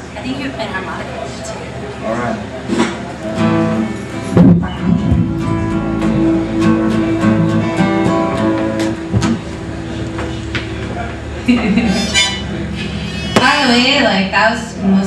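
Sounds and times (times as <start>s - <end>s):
acoustic guitars strummed: 2.6s - 14.0s.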